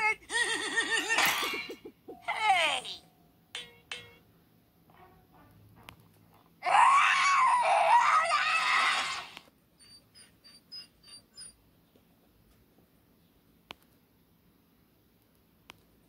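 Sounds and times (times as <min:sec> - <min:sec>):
person screaming: 0:06.6 - 0:09.4.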